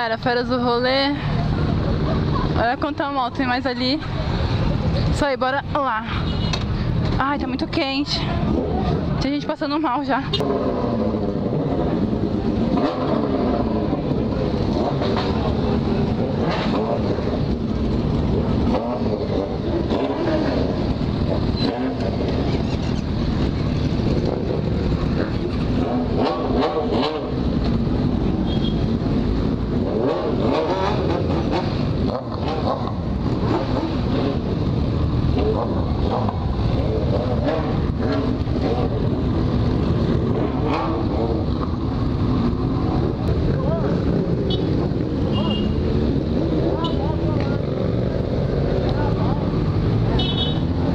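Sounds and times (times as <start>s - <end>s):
motorcycle engines idling and revving: 0.0s - 50.9s.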